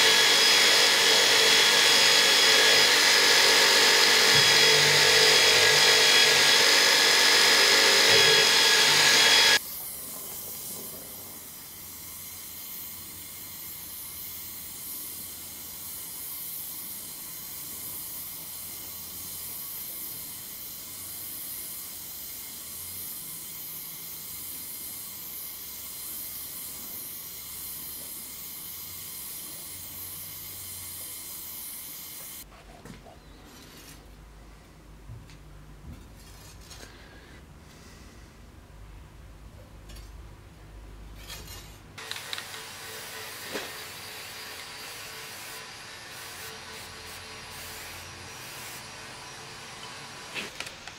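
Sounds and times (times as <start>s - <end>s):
belt grinder grinding steel: 0.0s - 10.7s, 41.2s - 50.6s
torch flame hissing: 42.0s - 50.9s.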